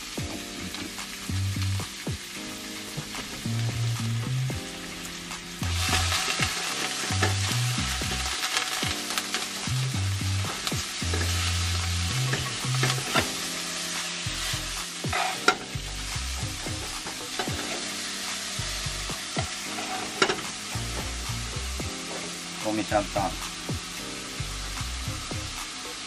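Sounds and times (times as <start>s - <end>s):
meat sizzling in oil: 0.0s - 26.0s
spatula scraping pan: 15.0s - 15.7s, 19.4s - 20.5s.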